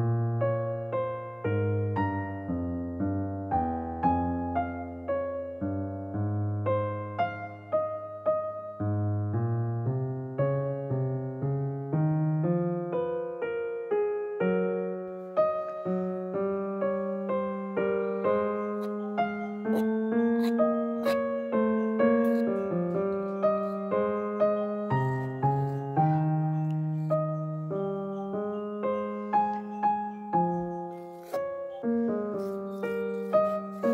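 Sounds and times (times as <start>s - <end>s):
gentle piano notes: 0.0s - 33.9s.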